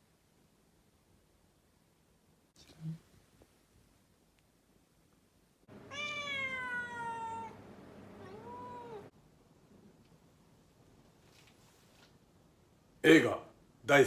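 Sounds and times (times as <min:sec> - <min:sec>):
cat meowing: 0:05.7 - 0:07.6, 0:08.2 - 0:09.1.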